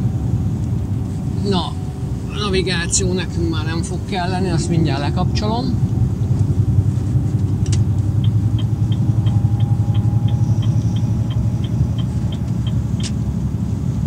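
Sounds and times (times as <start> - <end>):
truck diesel engine rumble: 0.0 - 14.0
evenly spaced light ticks: 7.6 - 13.2.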